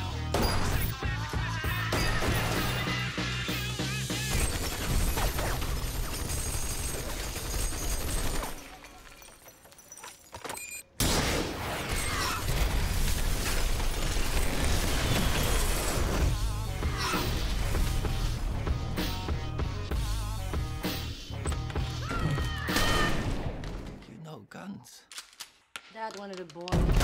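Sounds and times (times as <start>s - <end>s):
glass breaking: 4.3s - 10.8s
trailer music: 15.9s - 22.2s.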